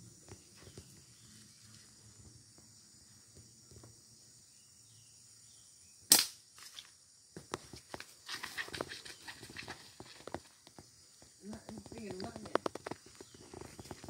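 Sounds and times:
slingshot rubber snap: 6.1s - 6.4s
small clicks and rustling: 6.6s - 14.0s.

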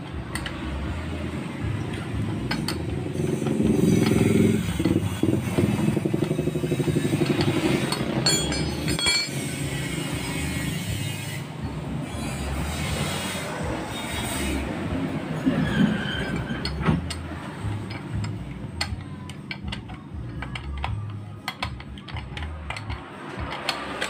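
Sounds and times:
spanner clinking on metal: 0.0s - 10.5s, 15.4s - 24.0s
motorcycle engine running: 0.6s - 11.0s.

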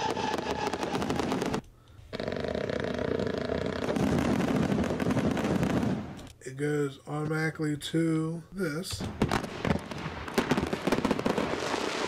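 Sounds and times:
firework cracks and bangs: 0.0s - 1.6s, 2.8s - 6.2s, 9.0s - 12.0s
firework whistles: 0.0s - 4.5s.

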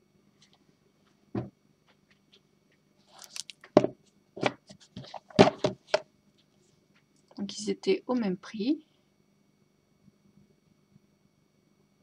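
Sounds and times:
cardboard box knocks: 5.3s - 5.8s.

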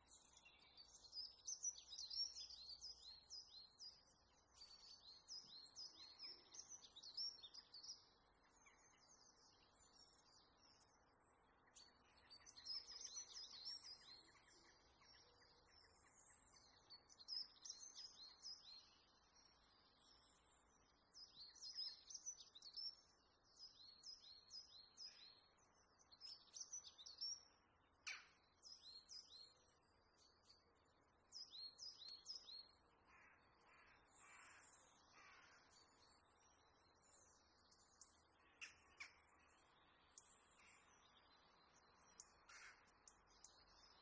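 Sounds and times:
high birds chirping: 31.3s - 44.0s.

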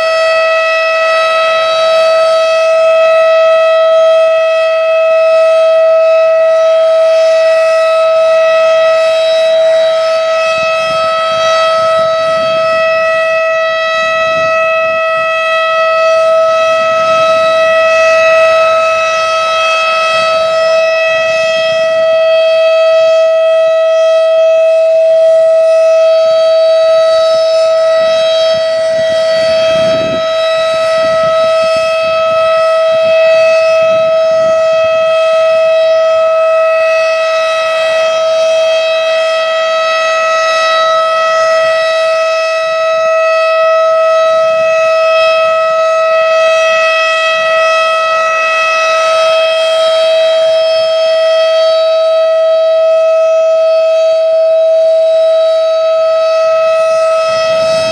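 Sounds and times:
tornado siren steady tone: 0.0s - 57.9s
wind buffeting microphone: 9.5s - 22.4s, 26.7s - 37.1s, 56.3s - 57.9s.

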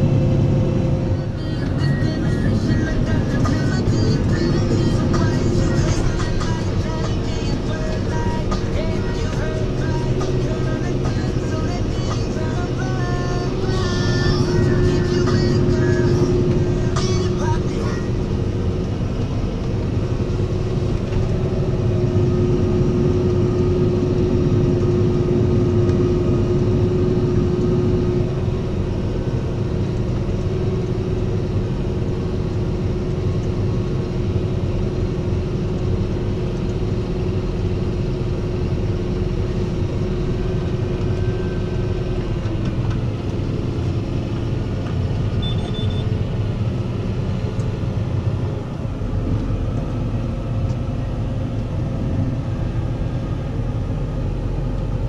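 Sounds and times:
steady engine whine: 0.0s - 55.0s
tractor diesel engine running: 0.0s - 55.0s
short high beep: 45.4s - 46.2s.

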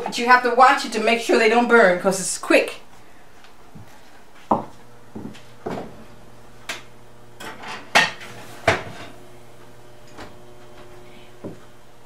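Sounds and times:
faint steady hum: 0.0s - 12.0s
dish knocking against oven: 7.4s - 9.2s.

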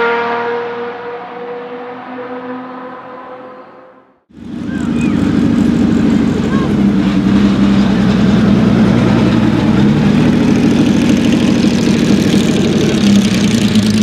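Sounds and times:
racing car engine idling: 4.3s - 14.0s.

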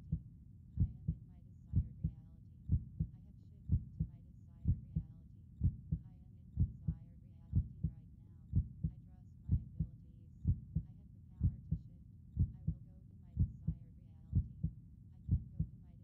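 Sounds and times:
heartbeat double thump: 0.8s - 1.2s, 1.8s - 3.1s, 3.7s - 4.1s, 5.6s - 6.0s, 8.6s - 8.9s, 9.5s - 9.9s, 12.4s - 12.8s, 15.3s - 15.7s
faint voice: 0.8s - 16.0s.

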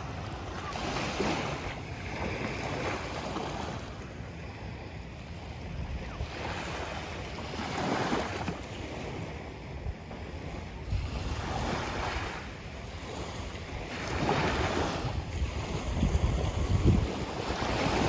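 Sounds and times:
small waves washing ashore: 0.0s - 18.0s
wind rumbling on microphone: 4.7s - 18.0s.

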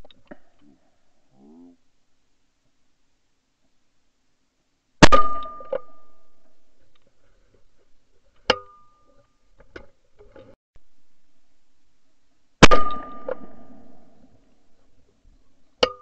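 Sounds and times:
shotgun shot with metallic ring: 5.0s - 6.4s, 12.6s - 14.1s.

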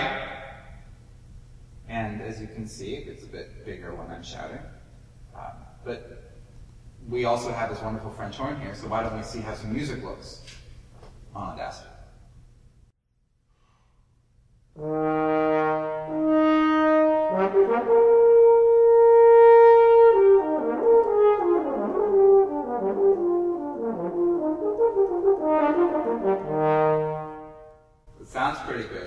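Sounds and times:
french horn playing: 14.8s - 28.2s.

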